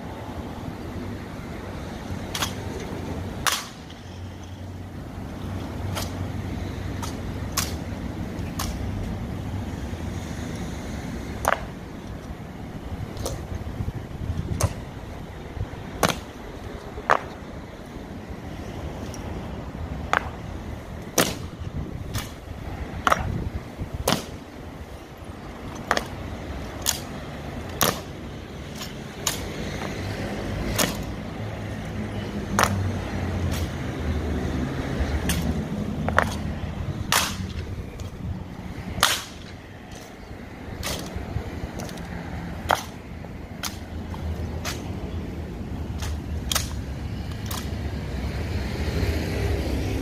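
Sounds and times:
boots and rifles striking ground: 35.3 - 36.5.

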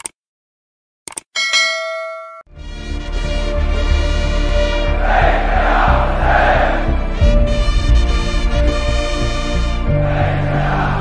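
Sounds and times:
notification bell ding: 1.4 - 2.5.

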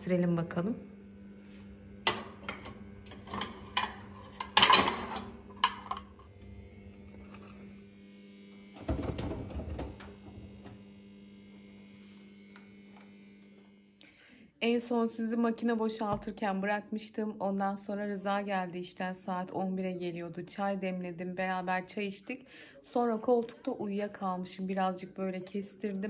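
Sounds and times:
low steady hum: 0.0 - 26.0
dishes and glassware clinking: 2.1 - 6.1.

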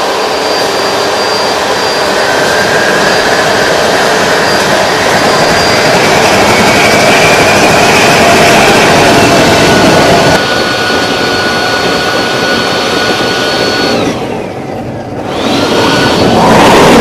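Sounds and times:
gas turbine running with whine: 0.0 - 17.0.

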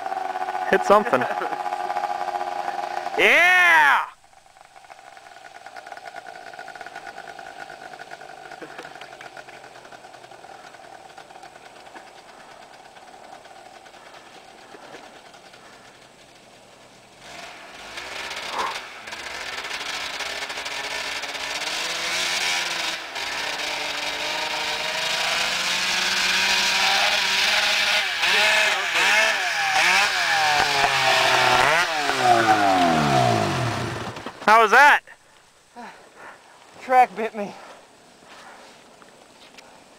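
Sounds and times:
snowmobile engine revving past: 17.2 - 34.2.

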